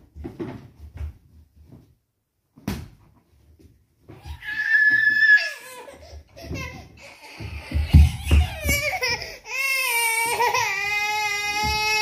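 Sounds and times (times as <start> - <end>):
toddler squealing: 4.2 - 6.0.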